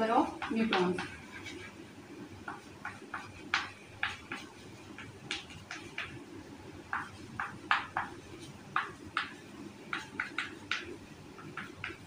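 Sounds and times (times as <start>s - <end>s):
chalk scratching on a blackboard: 0.4s - 1.8s.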